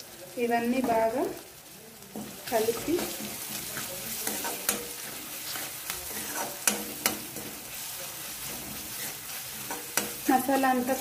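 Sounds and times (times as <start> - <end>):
masala sizzling in hot oil: 0.0 - 11.0
metal spatula stirring and scraping: 2.0 - 11.0
spatula clinking against pan: 6.1 - 7.6.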